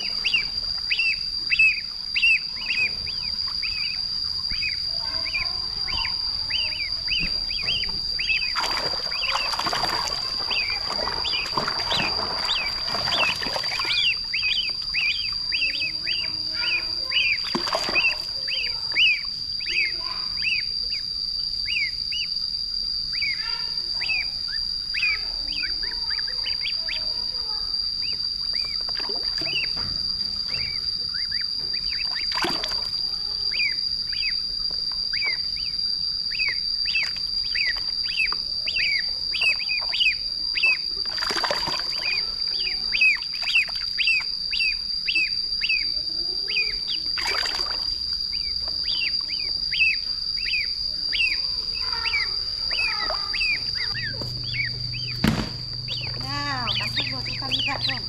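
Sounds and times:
ducklings peeping: 0:00.0 - 0:58.0
sharp knocks or splashes: 0:07.6 - 0:14.0, 0:55.2 - 0:55.9.

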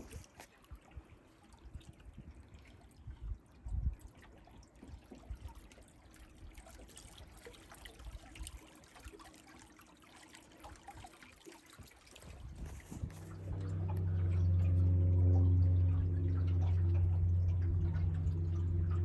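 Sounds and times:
small splashes: 0:00.0 - 0:19.0
water lapping against boat: 0:00.0 - 0:19.0
low rumble: 0:12.3 - 0:19.0.

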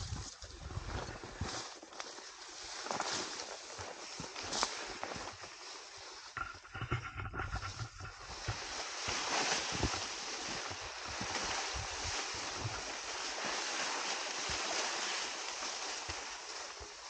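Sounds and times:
bamboo leaves rustling: 0:00.0 - 0:17.0
low thumps: 0:06.4 - 0:08.7.

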